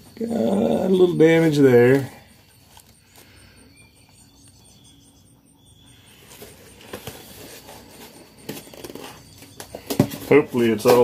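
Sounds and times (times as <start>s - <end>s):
cardboard box rustling: 6.2s - 11.0s.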